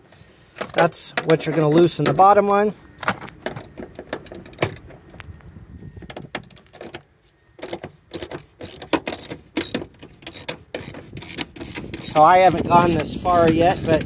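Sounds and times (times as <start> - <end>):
tool knocking against bolt: 3.4 - 5.0, 7.6 - 14.0
hand ratchet clicking: 3.6 - 4.8, 7.6 - 14.0.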